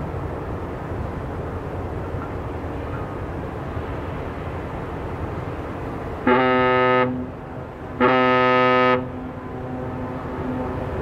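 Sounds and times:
ship's horn blasts: 0:06.2 - 0:10.9.

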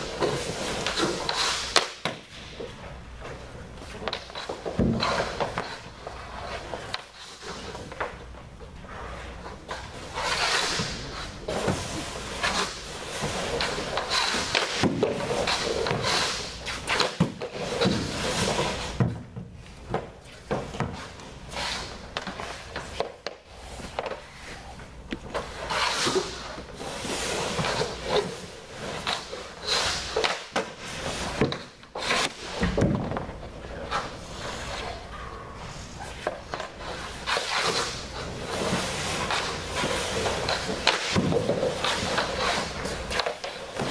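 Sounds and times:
skate blades scraping ice: 0:00.0 - 0:19.1, 0:19.8 - 0:43.9
pucks knocking against pads and boards: 0:04.0 - 0:05.8, 0:11.5 - 0:21.3, 0:36.2 - 0:43.9.

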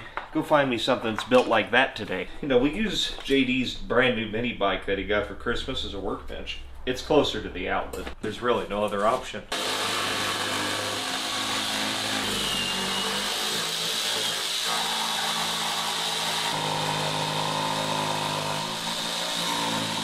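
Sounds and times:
saber saw cutting wood: 0:09.5 - 0:20.0.

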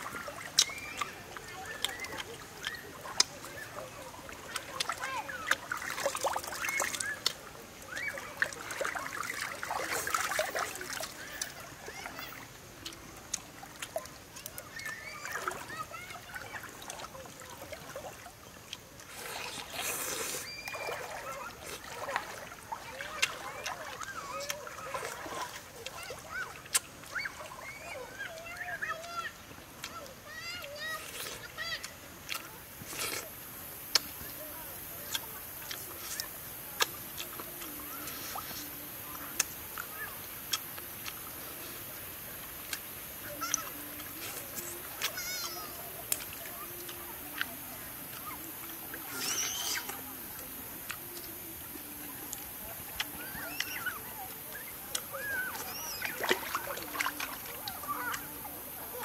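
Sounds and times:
eating noises: 0:00.0 - 0:59.0
chewing with crunches: 0:18.7 - 0:22.4, 0:31.0 - 0:31.5, 0:32.3 - 0:33.3, 0:35.1 - 0:38.7, 0:42.7 - 0:51.3.

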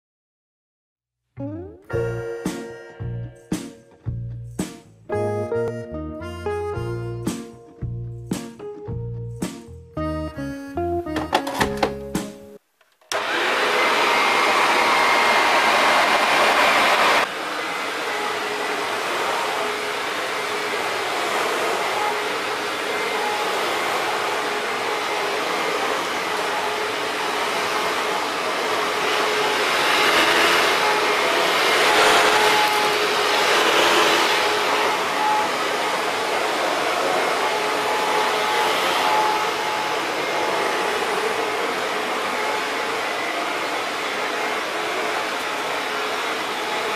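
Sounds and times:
upright vacuum cleaner running: 0:13.1 - 0:46.9
vacuum motor and airflow noise: 0:13.1 - 0:46.9.

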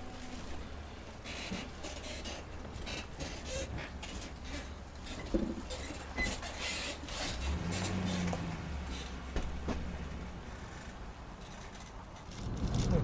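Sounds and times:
vehicle drone: 0:06.8 - 0:13.0
clicks and light rattles: 0:11.4 - 0:13.0.

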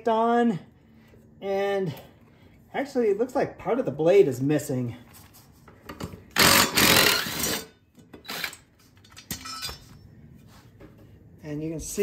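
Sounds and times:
cordless power tool zipping: 0:06.4 - 0:08.6.

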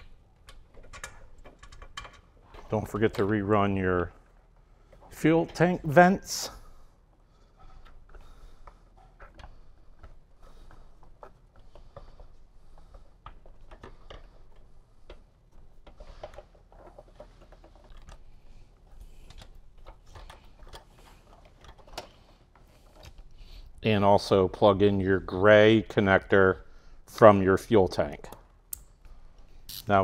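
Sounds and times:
small clicks of handling hoses: 0:00.0 - 0:05.8, 0:07.0 - 0:23.8.

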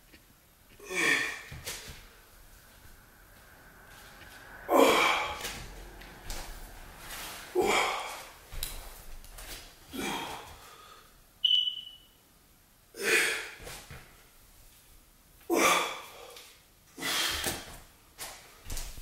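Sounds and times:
man exhaling forcefully: 0:00.8 - 0:01.7, 0:04.7 - 0:06.4, 0:07.5 - 0:08.4, 0:17.0 - 0:17.7.

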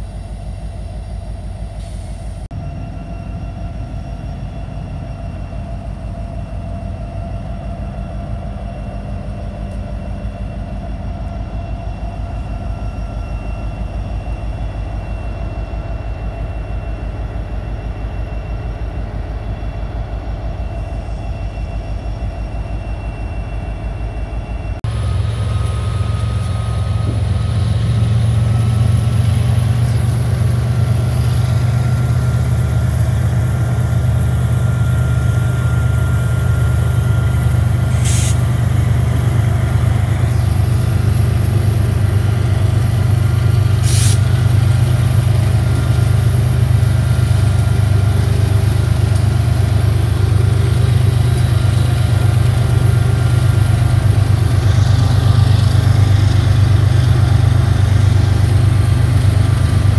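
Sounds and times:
locomotive engines droning: 0:00.0 - 0:59.9
short hisses: 0:37.9 - 0:38.4, 0:43.8 - 0:44.3.

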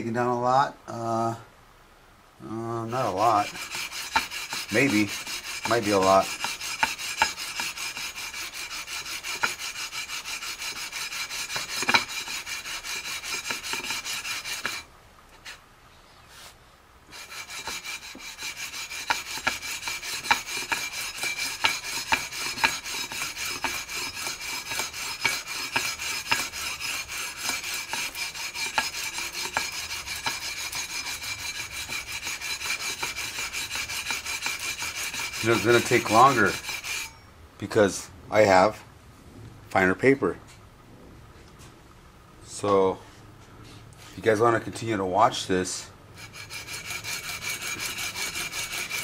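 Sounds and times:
sandpaper rasping on metal: 0:02.7 - 0:15.6, 0:16.3 - 0:37.2, 0:45.4 - 0:49.0.

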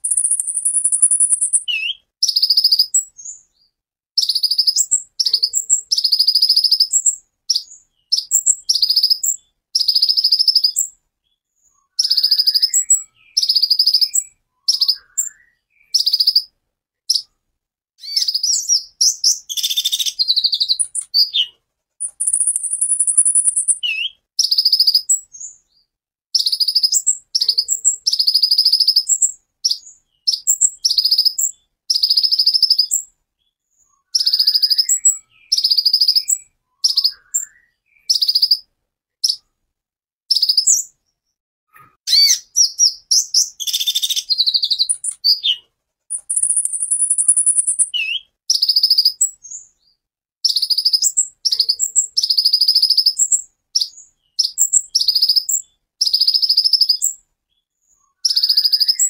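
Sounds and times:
high buzzing bird trill: 0:00.0 - 0:03.0, 0:18.0 - 0:25.2, 0:42.1 - 0:49.3
sunbird singing high rapid notes: 0:00.0 - 0:03.4, 0:18.0 - 0:25.5, 0:42.1 - 0:49.7.

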